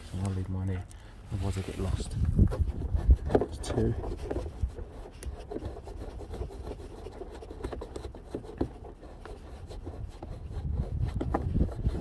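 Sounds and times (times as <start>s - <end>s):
hand rubbing on plastic: 0.0s - 12.0s.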